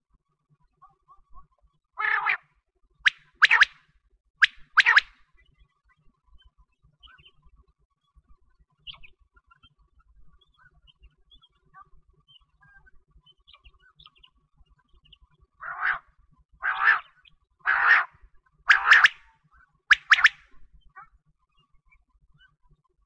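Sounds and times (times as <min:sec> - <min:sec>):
quail calling: 0:02.0 - 0:02.4, 0:03.1 - 0:03.8, 0:04.4 - 0:05.1, 0:15.6 - 0:19.2, 0:19.9 - 0:21.1.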